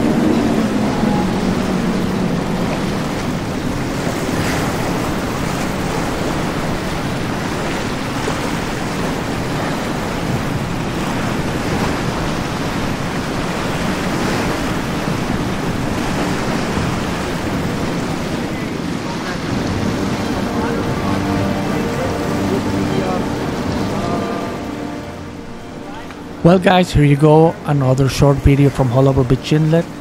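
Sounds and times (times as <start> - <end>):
wind noise on microphone: 0.0 - 21.0
boat engine drone: 0.0 - 30.0
water surging around boat hull: 0.0 - 30.0.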